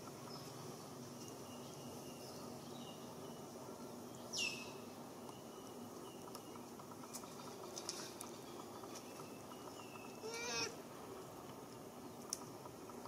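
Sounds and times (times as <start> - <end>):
faint insect hum: 0.0 - 13.0
high-pitched falling animal call: 10.2 - 10.8.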